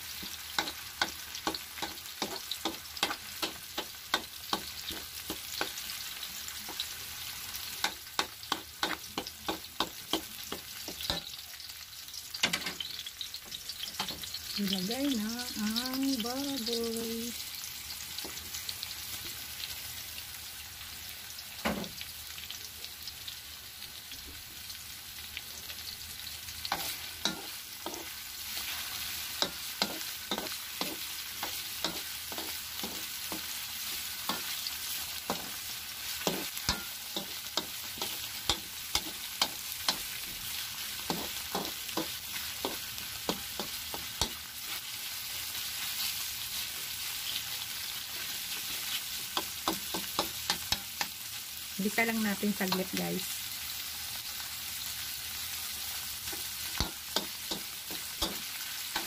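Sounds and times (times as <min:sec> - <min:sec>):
meat sizzling in a pan: 0:00.0 - 0:59.0
spatula knocking and scraping pan: 0:00.2 - 0:05.9, 0:07.8 - 0:11.4, 0:26.7 - 0:28.1, 0:29.4 - 0:33.5, 0:36.2 - 0:40.1, 0:41.0 - 0:44.4, 0:49.4 - 0:51.1, 0:56.3 - 0:59.0.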